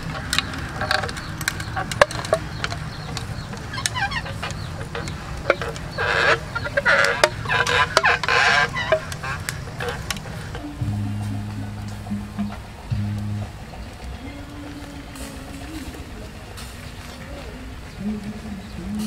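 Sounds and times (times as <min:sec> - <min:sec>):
sharp clicks: 0:00.0 - 0:15.0
chickens clucking: 0:00.0 - 0:19.0
low steady hum: 0:00.0 - 0:19.0.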